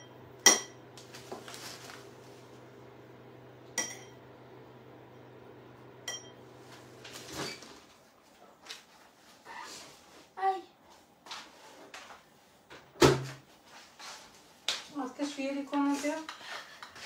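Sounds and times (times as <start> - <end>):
plastic bag rustling: 1.1 - 2.5
spoon clinking ceramic bowl: 3.8 - 4.2, 6.1 - 6.4.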